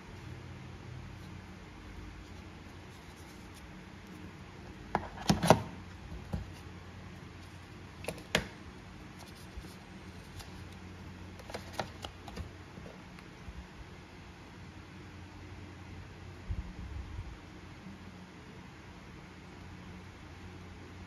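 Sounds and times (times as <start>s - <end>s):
paper insert taps and clicks: 8.0s - 8.6s, 11.4s - 12.5s.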